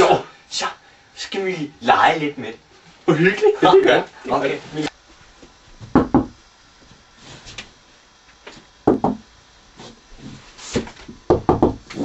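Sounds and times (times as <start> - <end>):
knuckles knocking on wall: 5.8 - 6.4, 8.8 - 9.3, 11.3 - 11.9.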